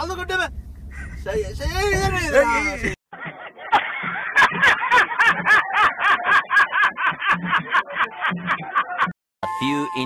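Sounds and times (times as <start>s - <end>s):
rapid rhythmic laughter: 3.1s - 9.2s.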